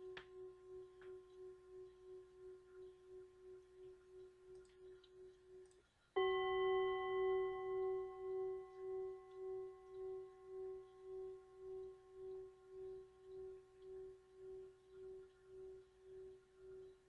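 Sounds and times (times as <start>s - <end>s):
singing bowl ringing: 0.0s - 17.0s
singing bowl struck: 6.2s - 17.0s.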